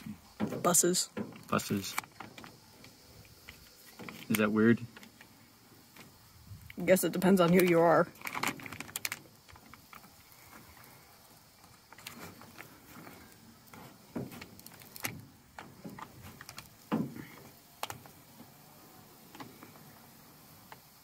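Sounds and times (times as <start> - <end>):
paper rustling and crinkling: 7.6 - 10.8, 11.8 - 17.1
squeegee scraping: 11.9 - 17.1.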